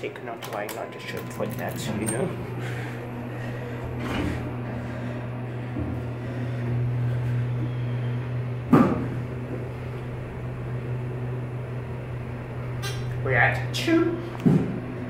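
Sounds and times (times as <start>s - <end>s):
elevator machinery hum: 0.0s - 15.0s.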